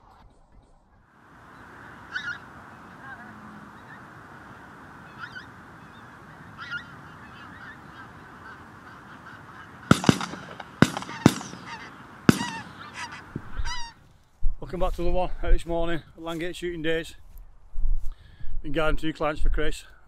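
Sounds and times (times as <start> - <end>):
geese flock chattering: 1.4 - 14.0
sharp high-pitched goose calls: 1.6 - 14.0.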